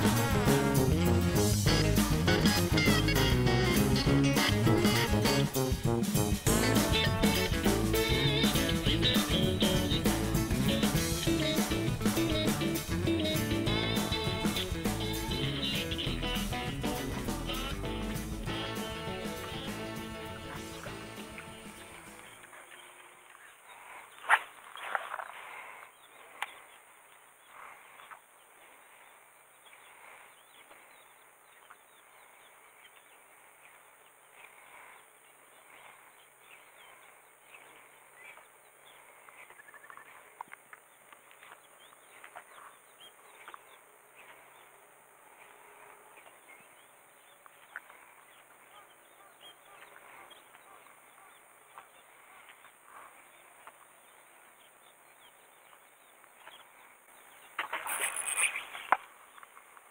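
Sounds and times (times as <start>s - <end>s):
small bird chirps: 36.6s - 40.3s.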